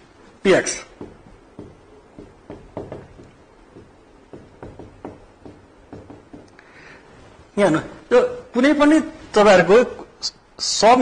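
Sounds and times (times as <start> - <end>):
writing taps on a board: 0.9 - 6.6.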